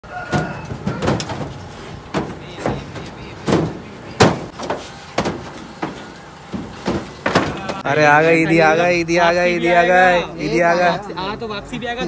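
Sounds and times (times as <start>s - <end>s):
cow bumping metal rail cage: 0.0s - 7.8s
hooves striking truck bed: 0.0s - 7.9s.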